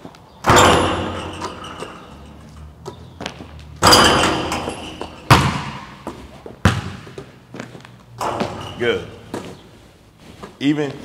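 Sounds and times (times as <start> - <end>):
basketball backboard and rim banging: 0.4 - 7.3, 8.2 - 9.4.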